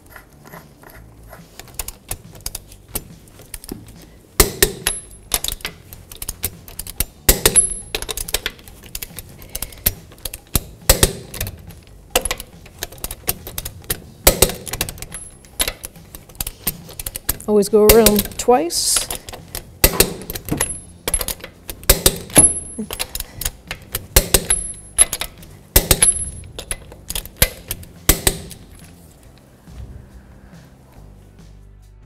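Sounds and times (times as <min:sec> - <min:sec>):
torque wrench ratcheting: 0:00.0 - 0:28.9
sharp torque wrench clicks: 0:19.0 - 0:28.8.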